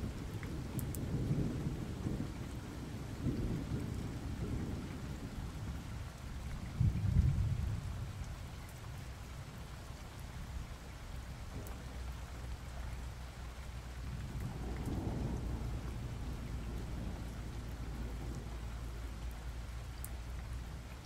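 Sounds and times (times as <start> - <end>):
steady rain falling: 0.0 - 21.0
rolling thunder: 6.7 - 8.3, 14.0 - 19.3.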